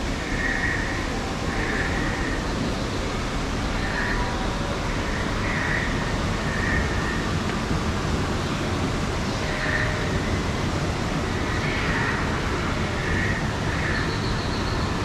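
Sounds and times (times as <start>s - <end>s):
steady low rumbling: 0.0s - 15.0s.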